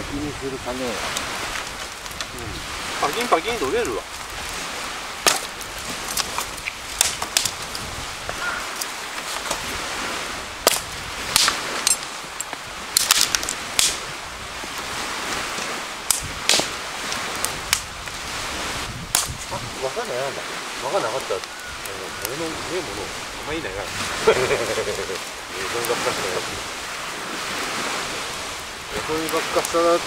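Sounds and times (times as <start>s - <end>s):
dry branches snapping: 1.0s - 9.8s, 10.6s - 19.5s, 21.1s - 22.4s.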